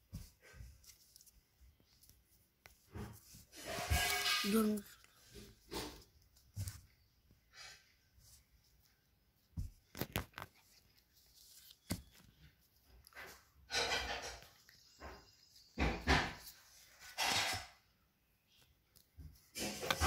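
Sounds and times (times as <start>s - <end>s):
cards rustling as fanned out: 0.7s - 2.8s, 9.6s - 13.3s.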